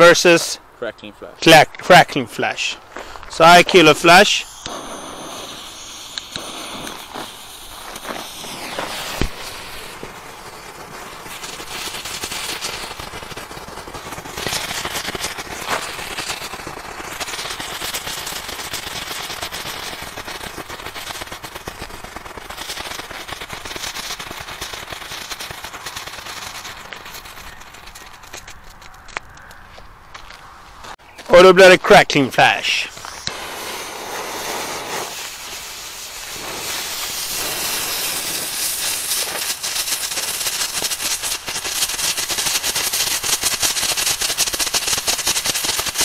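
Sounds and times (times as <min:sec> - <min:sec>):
firework crackling pops: 0:01.4 - 0:29.6, 0:30.2 - 0:46.0
fuse sparking: 0:01.4 - 0:29.6, 0:32.4 - 0:46.0
firework pop: 0:04.5 - 0:10.2.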